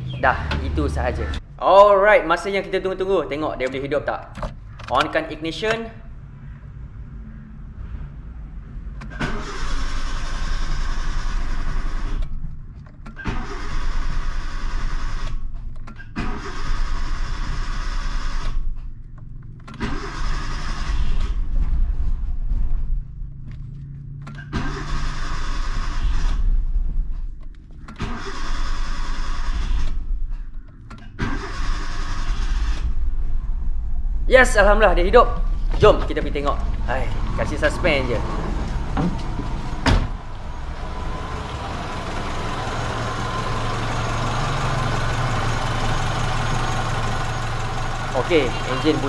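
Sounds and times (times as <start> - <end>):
starter motor cranking engine: 9.0 - 12.4, 13.0 - 18.7, 19.6 - 21.5, 24.3 - 26.6, 27.8 - 33.0, 34.7 - 49.0.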